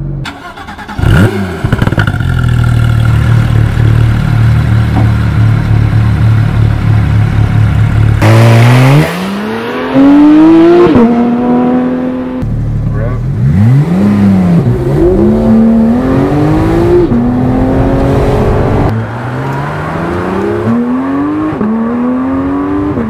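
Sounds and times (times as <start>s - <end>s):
sports car engine revving: 0.9s - 23.0s
car engine idling: 1.6s - 8.2s, 12.4s - 13.5s.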